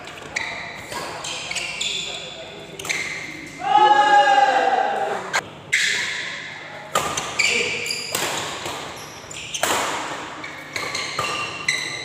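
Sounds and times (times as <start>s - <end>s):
shoes squeaking on court floor: 0.0s - 3.6s, 7.0s - 12.0s
racket hitting shuttlecock: 6.9s - 12.0s.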